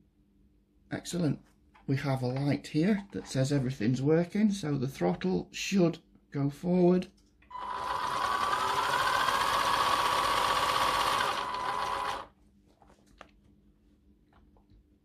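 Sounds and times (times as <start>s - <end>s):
electric motor whine: 7.5s - 12.3s.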